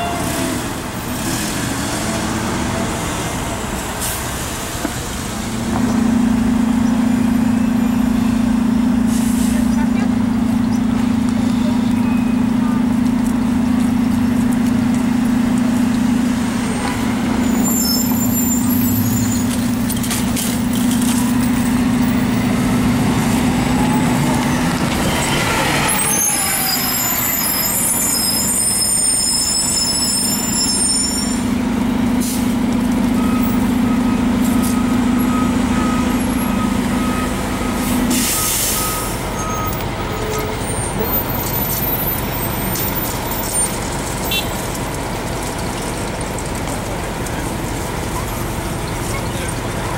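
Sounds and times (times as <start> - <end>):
bus engine idling: 0.0 - 29.9
brake squeals: 0.0 - 49.9
bus passing by: 0.0 - 49.9.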